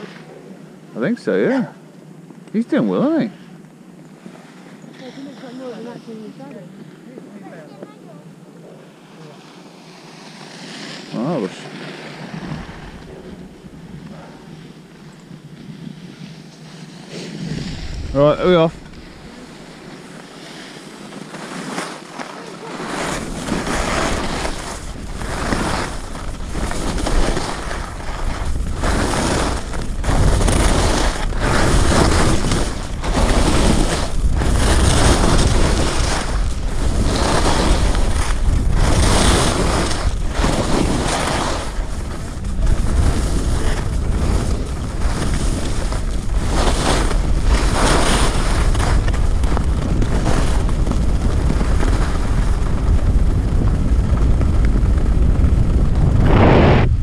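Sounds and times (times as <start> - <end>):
skis scraping on snow: 0.0 - 0.3, 4.2 - 57.0
wind rushing over microphone: 11.0 - 20.7, 22.7 - 57.0.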